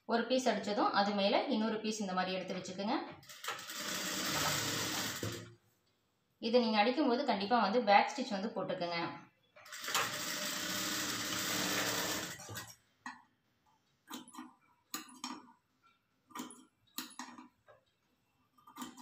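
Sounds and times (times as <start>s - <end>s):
sewing machine running: 3.3s - 5.5s, 9.7s - 12.7s.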